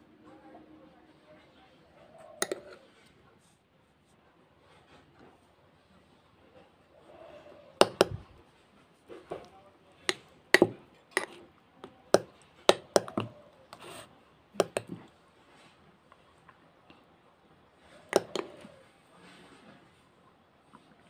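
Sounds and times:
spoon stirring thick paste: 0:02.1 - 0:03.0, 0:07.0 - 0:08.4, 0:09.1 - 0:15.1, 0:18.1 - 0:18.8
spoon clinking on glass bowl: 0:02.4 - 0:02.8.

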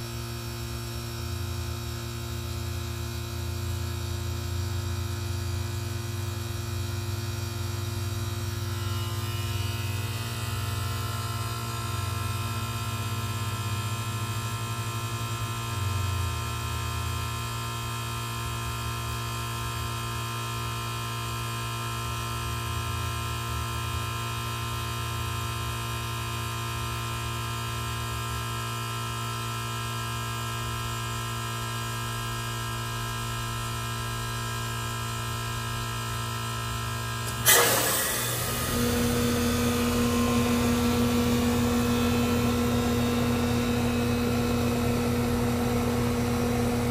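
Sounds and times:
outdoor fan hum: 0:32.7 - 0:46.9
heat pump compressor humming: 0:36.2 - 0:46.9
valve whoosh: 0:37.3 - 0:43.6.

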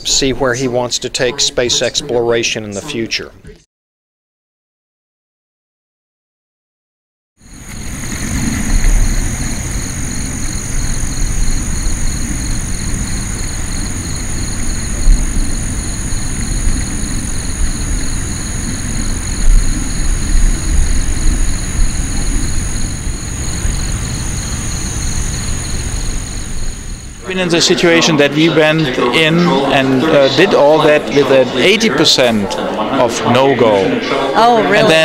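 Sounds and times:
insects chirring: 0:07.4 - 0:32.0
low thumps: 0:07.7 - 0:27.2.

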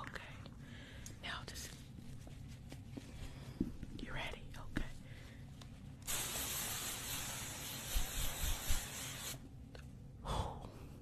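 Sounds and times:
spray hissing: 0:06.0 - 0:09.4.

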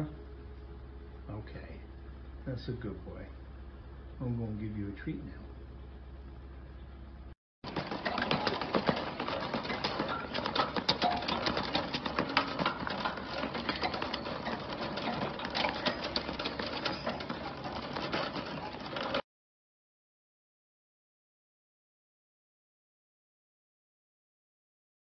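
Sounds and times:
wire shopping cart rattling: 0:07.6 - 0:19.2.

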